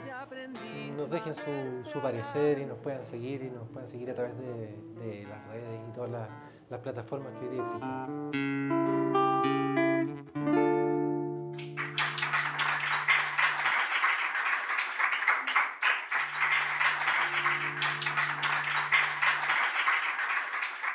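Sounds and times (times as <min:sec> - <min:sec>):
acoustic guitar chord ringing: 0:00.0 - 0:05.8, 0:07.5 - 0:13.4, 0:16.4 - 0:19.6
audience applause: 0:11.6 - 0:20.9.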